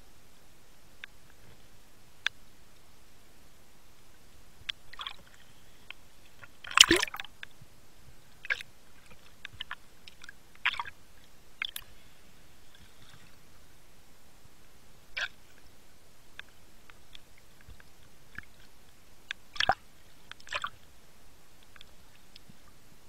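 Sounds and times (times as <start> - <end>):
underwater gurgling: 6.4 - 7.4.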